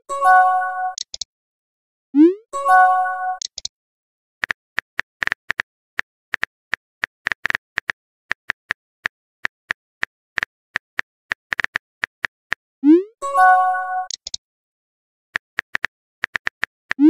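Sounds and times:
multi-tone message chime: 0:00.1 - 0:01.0, 0:02.6 - 0:03.4, 0:13.0 - 0:14.1
phone keyboard typing clicks: 0:00.9 - 0:01.3, 0:03.4 - 0:03.7, 0:07.2 - 0:08.8, 0:10.4 - 0:12.3, 0:14.0 - 0:14.4, 0:15.4 - 0:17.0.

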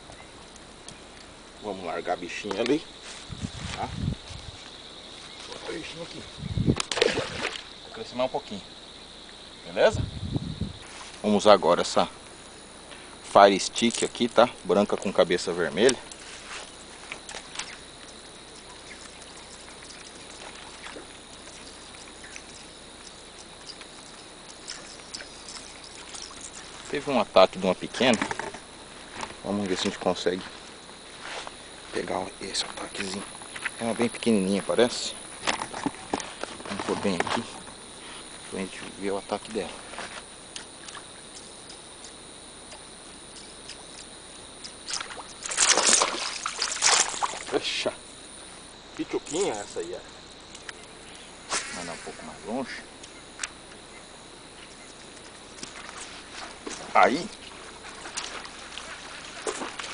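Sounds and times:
outdoor hiss: 0:00.0 - 0:59.9
fish splashing in water: 0:06.8 - 0:07.7, 0:44.8 - 0:47.5, 0:57.9 - 0:59.9
lure splashing on water: 0:06.8 - 0:07.7, 0:17.1 - 0:26.9, 0:43.4 - 0:47.7, 0:58.0 - 0:59.9.

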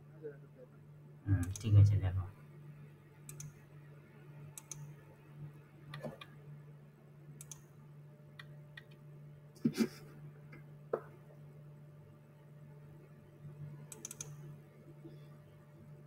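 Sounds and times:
faint low hum: 0:00.0 - 0:16.0
computer mouse clicks: 0:01.4 - 0:01.7, 0:03.3 - 0:03.6, 0:04.5 - 0:04.9, 0:07.4 - 0:07.7, 0:13.9 - 0:14.5.

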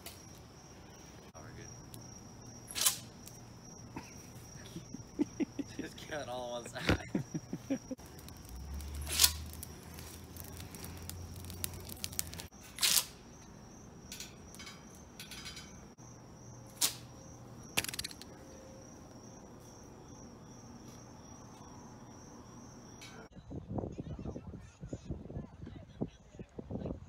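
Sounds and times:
crickets trilling: 0:00.0 - 0:23.4.

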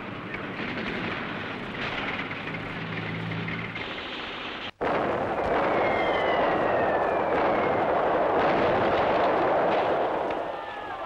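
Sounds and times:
explosions: 0:00.0 - 0:10.7
falling whistles: 0:05.7 - 0:07.9.

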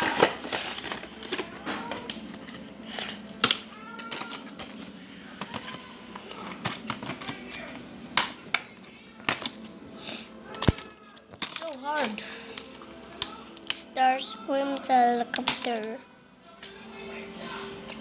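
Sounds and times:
plastic clicks and rattles: 0:03.4 - 0:08.7.

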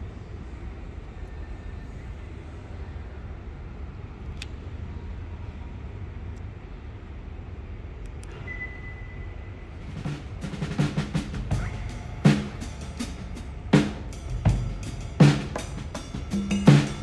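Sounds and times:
faint clicks: 0:04.2 - 0:04.7.

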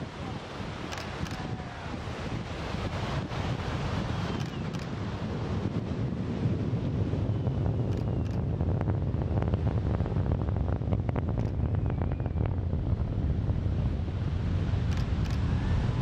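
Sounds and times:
breaking surf: 0:00.0 - 0:06.5
distant rocket launch rumble: 0:00.0 - 0:16.0
wind buffeting microphone: 0:00.0 - 0:16.0.

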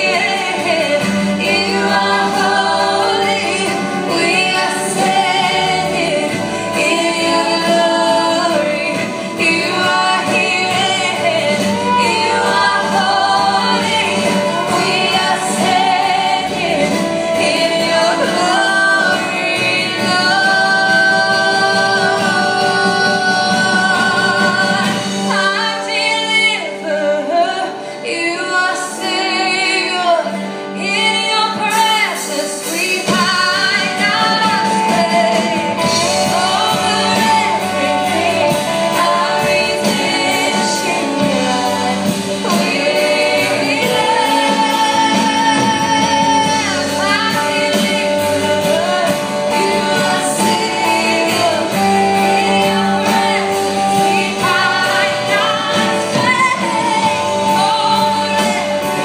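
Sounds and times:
steady drum beat: 0:00.0 - 0:25.6, 0:31.7 - 0:59.0
strummed acoustic guitar: 0:00.0 - 0:26.4
electric guitar: 0:00.0 - 0:59.0
woman singing: 0:00.0 - 0:59.0.

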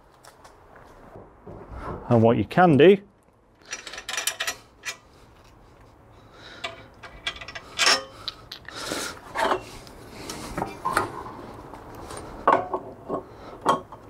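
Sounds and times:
sharp knocks and clicks of parts: 0:03.2 - 0:05.6, 0:06.6 - 0:08.8.

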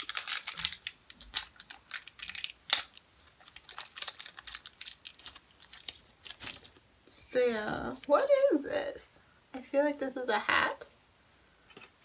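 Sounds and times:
wrapper crinkling: 0:00.0 - 0:06.8
wrapper snap: 0:00.0 - 0:06.8.

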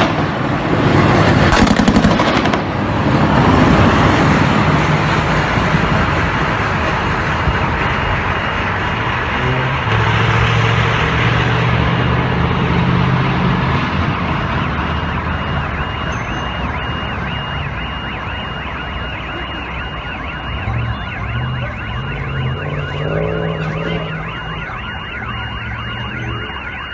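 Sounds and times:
heavy vehicle engine running: 0:00.0 - 0:26.9
electronic alarm warbling: 0:11.9 - 0:26.9.

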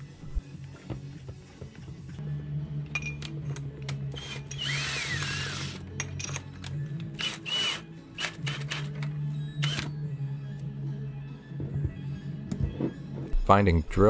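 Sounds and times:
cordless drill motor whining: 0:04.2 - 0:05.8, 0:07.2 - 0:08.9.

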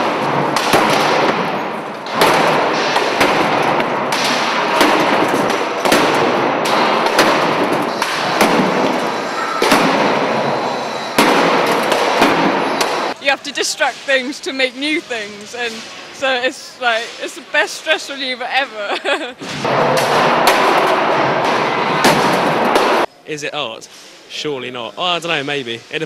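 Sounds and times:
sledgehammers smashing appliances: 0:00.0 - 0:13.1
constant loud din: 0:00.0 - 0:23.2.

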